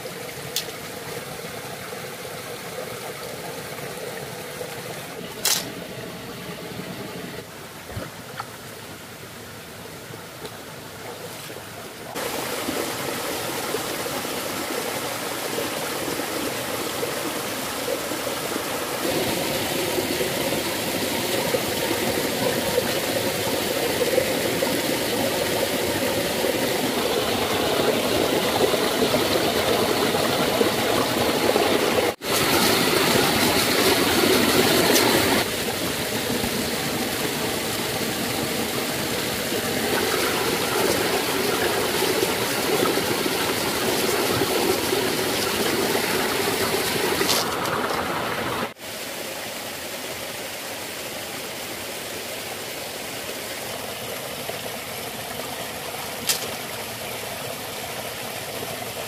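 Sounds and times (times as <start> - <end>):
stream flowing over rocks: 0.0 - 59.0.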